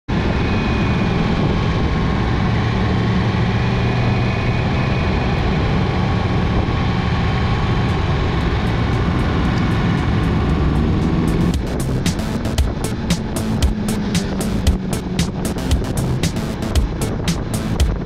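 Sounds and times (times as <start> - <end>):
wind rushing over microphone: 0.1 - 18.0
motorcycle engine running: 7.6 - 18.0.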